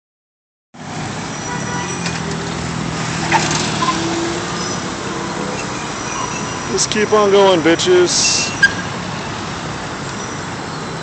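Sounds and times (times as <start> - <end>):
cars driving slowly past: 0.8 - 11.0
city traffic: 0.8 - 11.0.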